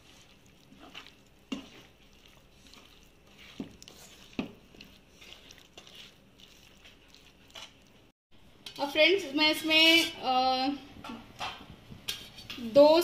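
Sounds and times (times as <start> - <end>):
hand squelching marinade: 0.0 - 8.1.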